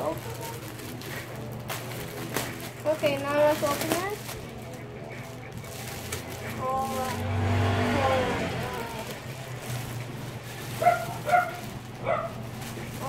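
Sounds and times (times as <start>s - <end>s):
plastic bag crinkling: 0.0s - 13.0s
dog barking: 10.8s - 12.5s.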